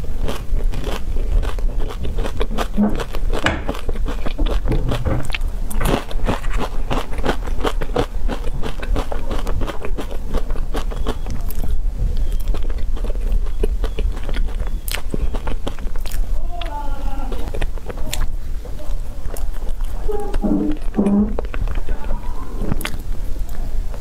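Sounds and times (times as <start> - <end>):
crunching bites and chewing: 0.0 - 24.0.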